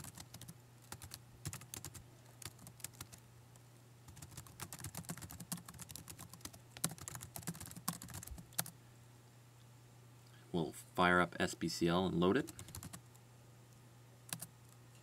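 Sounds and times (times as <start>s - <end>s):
computer keyboard typing: 0.0s - 3.2s, 4.1s - 8.7s, 12.5s - 13.2s, 14.3s - 14.5s
faint low hum: 0.0s - 15.0s.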